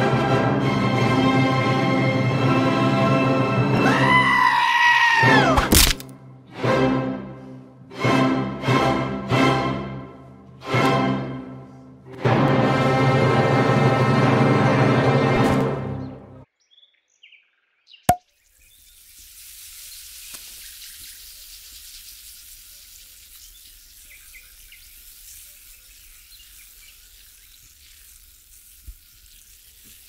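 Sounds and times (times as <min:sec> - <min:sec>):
orchestral music: 0:00.0 - 0:04.1, 0:06.2 - 0:16.4
champagne cork popping: 0:05.6 - 0:06.1
champagne fizzing: 0:18.4 - 0:30.0.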